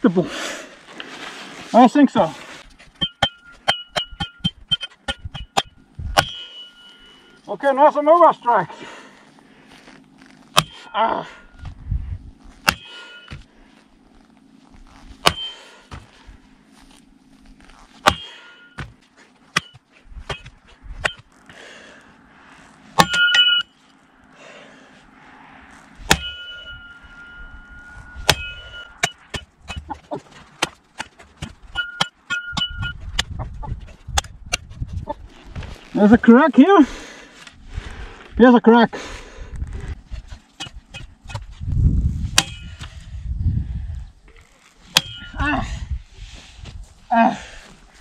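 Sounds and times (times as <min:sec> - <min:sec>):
shaft striking metal post: 0:03.0 - 0:07.0, 0:15.2 - 0:15.6, 0:19.5 - 0:21.3, 0:23.0 - 0:23.7, 0:26.1 - 0:30.0, 0:30.6 - 0:33.3, 0:42.4 - 0:42.9, 0:44.9 - 0:45.4.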